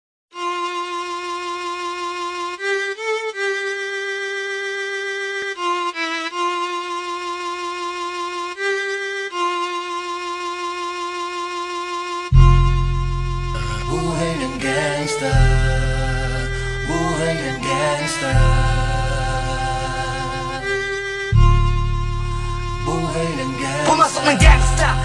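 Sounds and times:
violin slow melody: 0:00.3 - 0:25.0
heavy deep bass beat: 0:12.4 - 0:14.6, 0:21.4 - 0:25.0.

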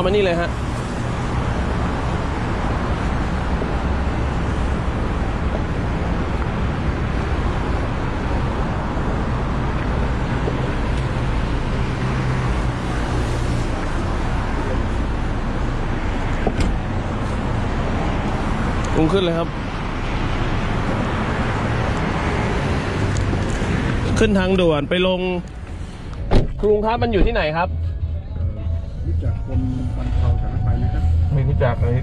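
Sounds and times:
road noise: 0:00.0 - 0:32.0
low engine hum: 0:25.5 - 0:32.0.

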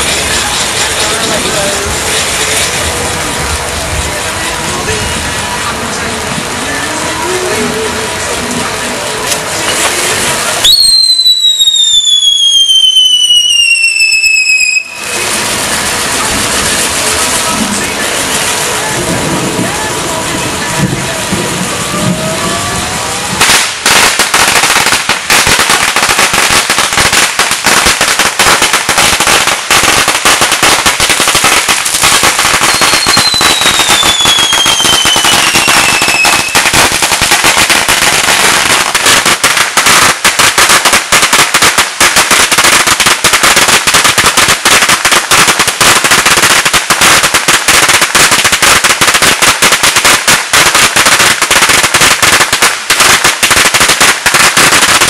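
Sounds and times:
firecrackers banging: 0:00.0 - 0:55.0
falling whistle: 0:10.6 - 0:15.0.

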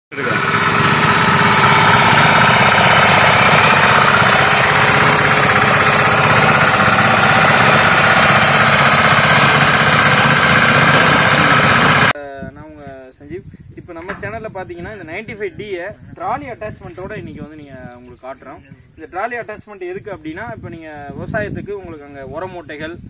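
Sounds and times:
diesel engine running: 0:00.1 - 0:12.2.

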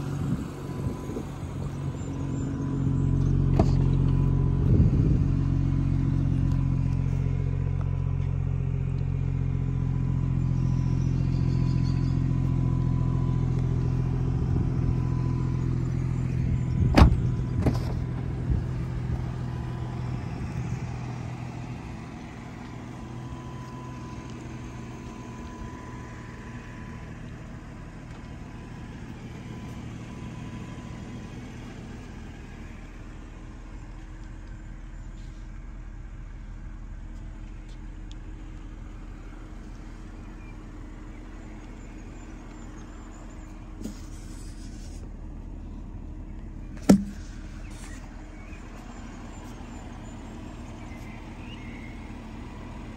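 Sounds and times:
car engine idling: 0:00.0 - 0:52.9
sharp knock: 0:46.8 - 0:47.2.

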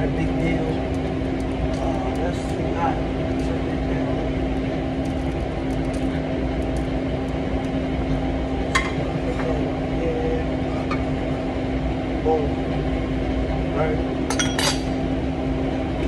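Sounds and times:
kitchen equipment droning: 0:00.0 - 0:16.0
dishware clink: 0:14.3 - 0:15.0.

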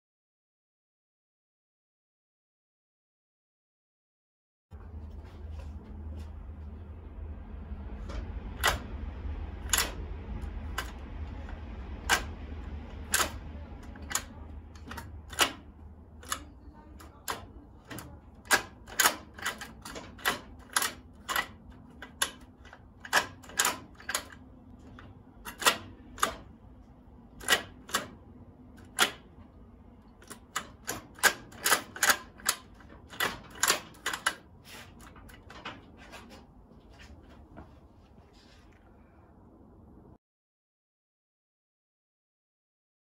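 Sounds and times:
sharp irregular clicks: 0:08.1 - 0:26.6, 0:27.3 - 0:29.3, 0:30.0 - 0:35.8.

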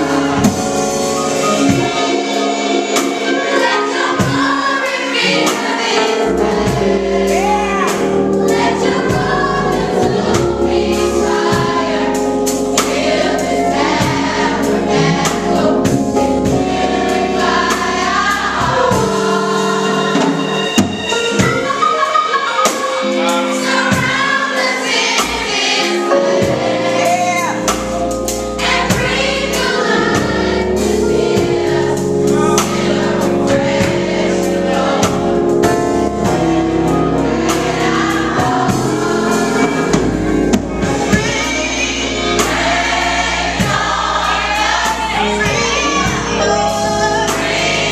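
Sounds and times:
youth choir singing gospel: 0:00.0 - 0:47.9
deep low accompaniment: 0:08.6 - 0:19.0.

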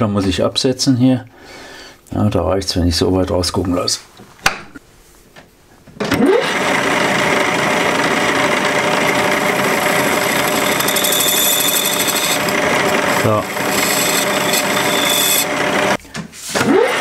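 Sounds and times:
lathe motor whirring: 0:06.1 - 0:16.0
high steady tone: 0:09.0 - 0:15.6.

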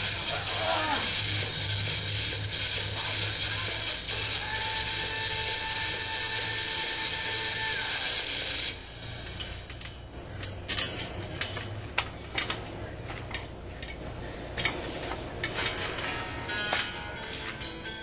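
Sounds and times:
music: 0:00.0 - 0:18.0
trampoline springs creaking and clanking: 0:09.0 - 0:18.0.

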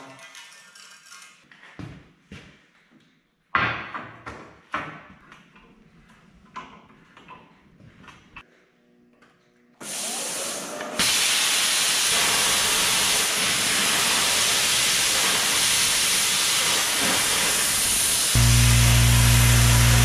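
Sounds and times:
plasma cutter hissing: 0:11.0 - 0:20.0.

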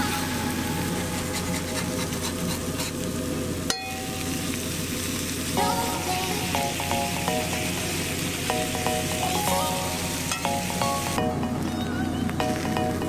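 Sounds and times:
burger sizzling on a griddle: 0:00.0 - 0:13.0
short musical notes: 0:05.6 - 0:13.0.

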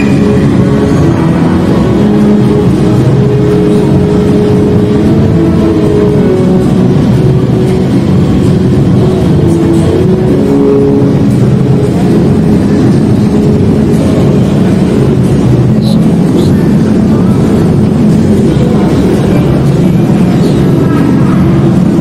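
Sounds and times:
deep rumbling soundtrack over loudspeakers: 0:00.0 - 0:22.0
held low tones: 0:00.0 - 0:22.0.

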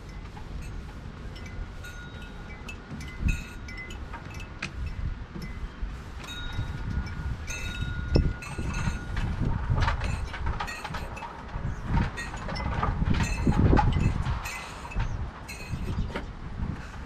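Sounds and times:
wind chimes ringing: 0:00.0 - 0:09.2, 0:10.0 - 0:11.4, 0:12.2 - 0:16.0
wind rumble on microphone: 0:00.0 - 0:17.0.

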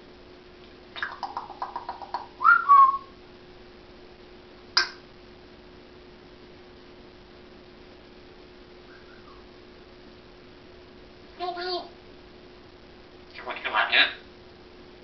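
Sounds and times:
parrot clicking: 0:01.0 - 0:02.3
parrot whistle: 0:02.4 - 0:03.2, 0:08.9 - 0:09.5
sharp click-like chirp: 0:04.8 - 0:05.0.

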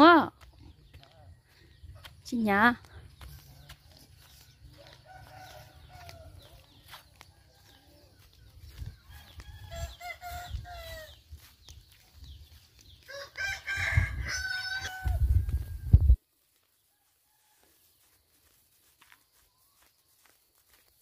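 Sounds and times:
rooster crowing: 0:04.7 - 0:06.3, 0:09.1 - 0:11.2, 0:13.0 - 0:15.6.

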